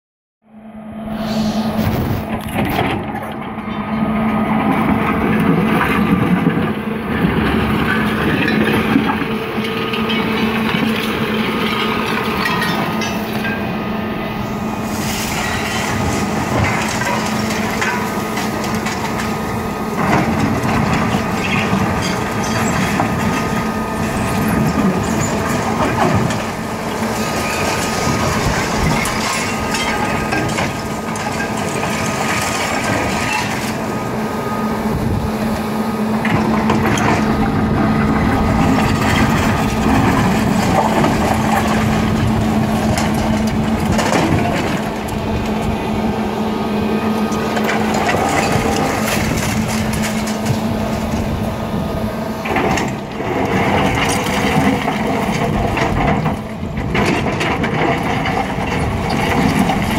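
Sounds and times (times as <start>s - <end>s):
excavator motor hum: 0.5s - 59.9s
bucket scraping: 1.1s - 3.4s.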